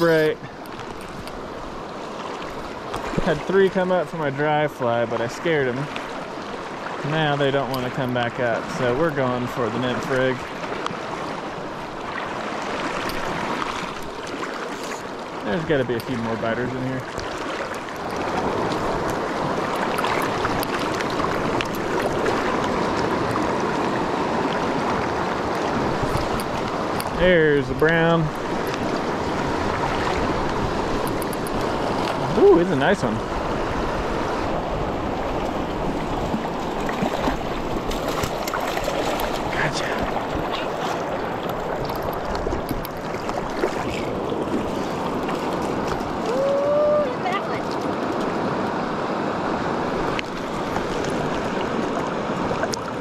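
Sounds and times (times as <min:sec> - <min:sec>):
small water splashes: 0:00.0 - 0:53.0
river rushing over rocks: 0:17.1 - 0:53.0.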